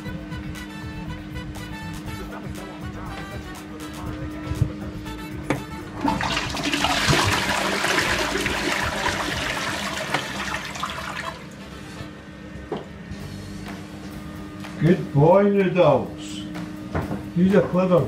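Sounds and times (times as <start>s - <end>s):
toilet water swirling: 5.9s - 11.9s.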